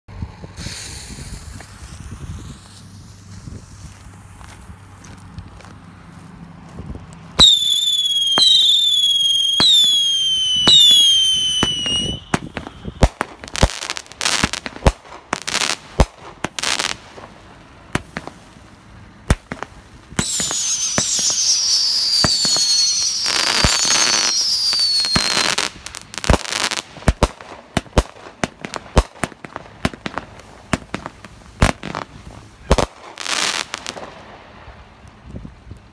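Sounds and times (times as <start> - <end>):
firework whistles falling in pitch: 7.4 - 14.5, 20.2 - 26.8
firework pops and bangs: 7.4 - 18.5, 19.3 - 34.6.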